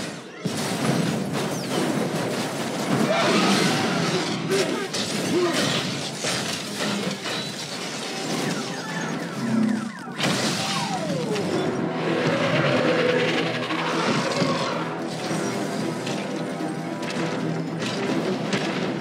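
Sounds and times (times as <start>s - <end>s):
crashing and smashing debris: 0.0s - 19.0s.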